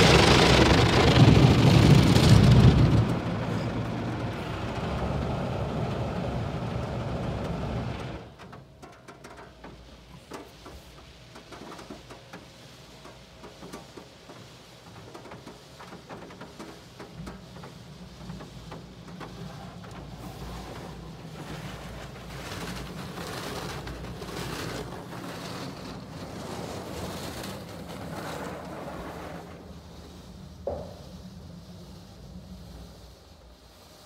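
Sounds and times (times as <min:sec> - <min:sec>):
low machine rumble: 0:00.0 - 0:08.4
water jets spraying on car: 0:00.0 - 0:08.4, 0:09.6 - 0:33.9.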